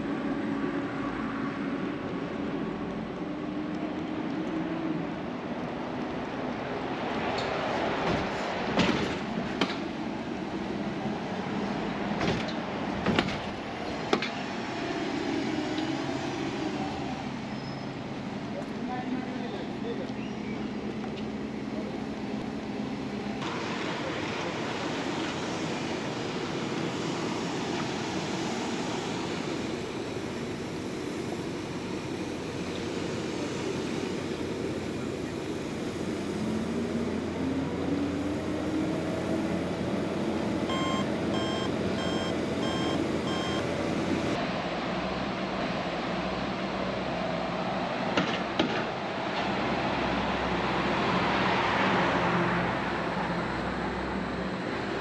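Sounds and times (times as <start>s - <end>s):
traffic noise: 0.0s - 55.0s
vehicle engine rising in pitch: 36.4s - 44.4s
short electronic beeps: 40.7s - 43.7s.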